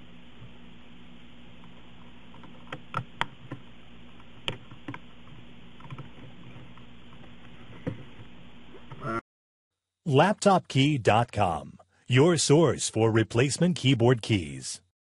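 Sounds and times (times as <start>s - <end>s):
steady low hum: 0.0s - 9.2s, 10.1s - 14.9s
laptop keyboard clicks: 4.4s - 5.1s.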